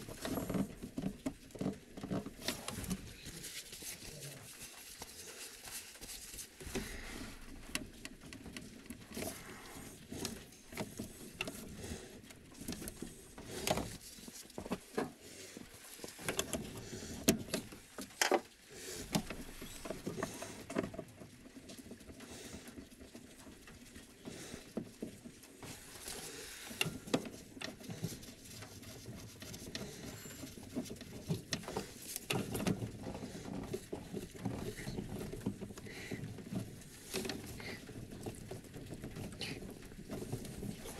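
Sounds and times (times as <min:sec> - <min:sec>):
rustling: 0:00.0 - 0:40.9
light clicks and taps of tools: 0:10.2 - 0:15.2.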